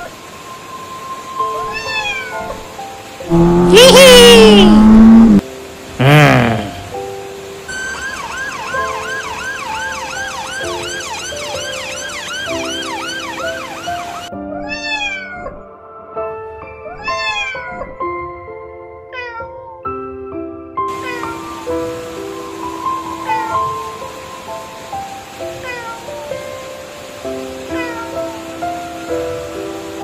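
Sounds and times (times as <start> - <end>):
soft background music: 0.0 - 3.9, 4.6 - 30.0
cat meowing: 1.6 - 2.7, 3.3 - 5.4, 14.5 - 15.6, 16.8 - 18.0, 19.1 - 19.5, 20.9 - 21.4, 25.6 - 26.1, 27.7 - 28.2
ambulance siren yelping: 7.7 - 14.3.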